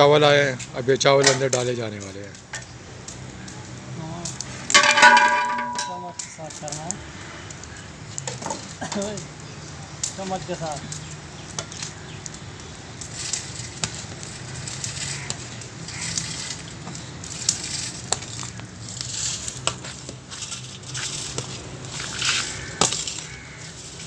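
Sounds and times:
ladle clinking against metal: 4.8 - 6.3
rice grains pattering into pot: 7.6 - 24.0.

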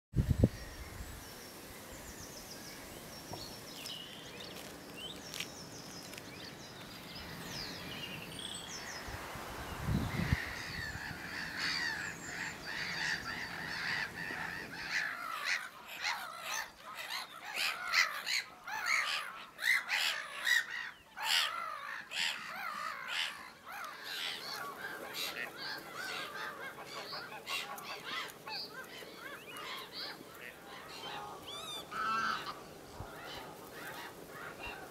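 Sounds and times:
songbird chirps: 0.2 - 34.9
flock of waterbirds calling: 0.8 - 34.9.

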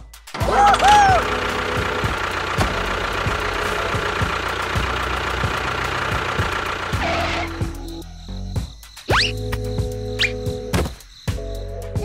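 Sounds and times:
tractor engine knocking: 0.3 - 8.6.

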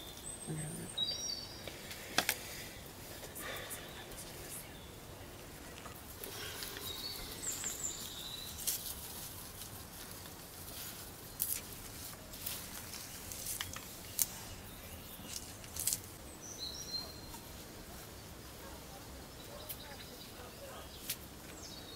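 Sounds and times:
bird chirping: 0.0 - 9.6, 12.6 - 18.3, 19.2 - 21.9
leaves rustling and crackling: 0.0 - 21.9
sharp snaps and crinkles: 1.6 - 4.5, 5.6 - 16.3, 21.0 - 21.6.

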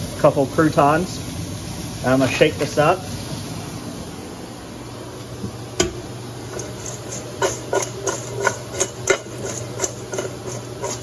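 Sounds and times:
salad tossed in metal bowl: 6.5 - 11.0.

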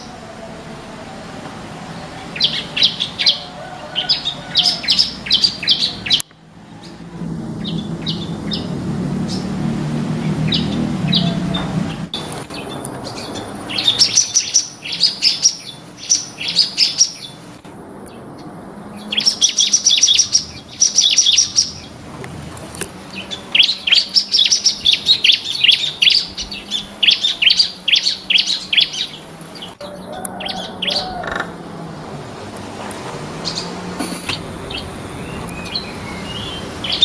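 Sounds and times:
bird rapid high chirping: 2.0 - 6.2, 10.4 - 17.4, 18.4 - 22.0, 23.1 - 31.5, 33.4 - 37.0.

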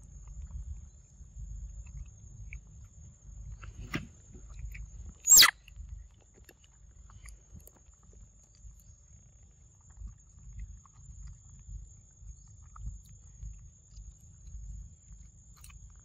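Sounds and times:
shrill descending call: 5.3 - 5.5.

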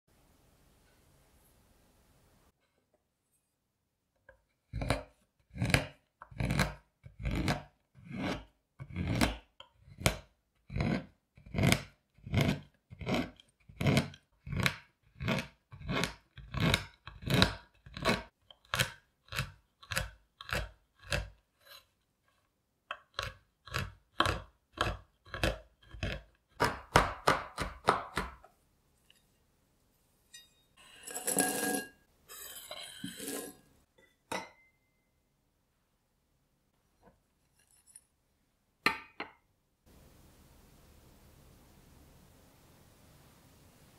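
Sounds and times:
knife chopping on wooden board: 23.1 - 28.4
chocolate sliding into glass bowl: 30.3 - 33.8.

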